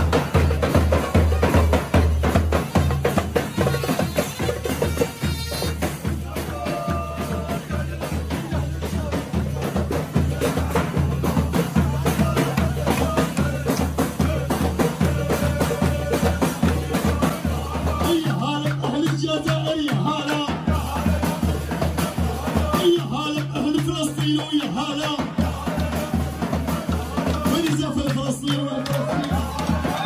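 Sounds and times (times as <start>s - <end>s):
wind instrument melody: 0.0s - 7.3s
bass drum beating: 0.0s - 30.0s
frame drums: 0.0s - 30.0s.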